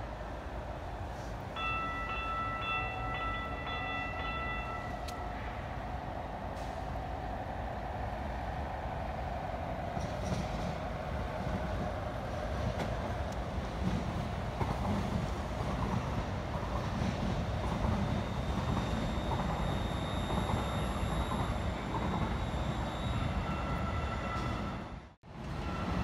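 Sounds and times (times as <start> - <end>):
train wheels rumbling on rail: 0.0 - 26.0
faint high whining tones: 18.0 - 24.8.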